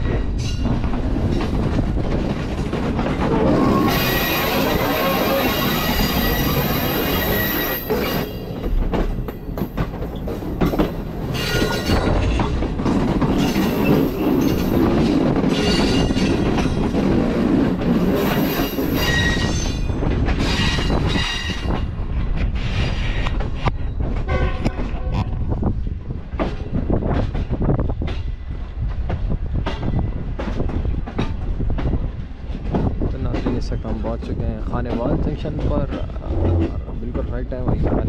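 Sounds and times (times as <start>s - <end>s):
train rumbling: 0.0s - 38.0s
steel wheels squealing on rails: 3.1s - 12.5s, 13.3s - 16.9s, 18.0s - 25.5s.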